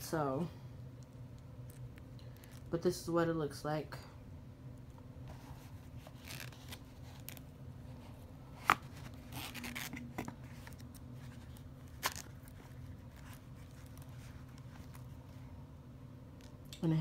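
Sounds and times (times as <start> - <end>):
rustling of packaging: 5.3 - 15.4.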